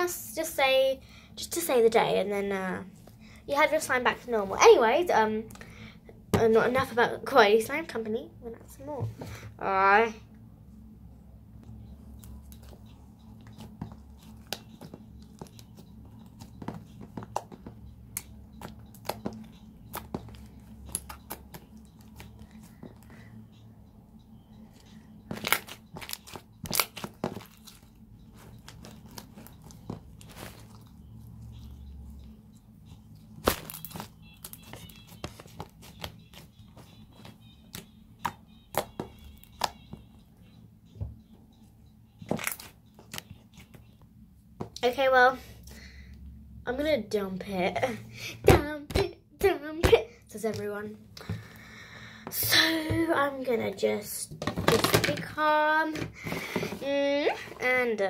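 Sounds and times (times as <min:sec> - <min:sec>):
slime squelching by hand: 0:25.3 - 0:38.0.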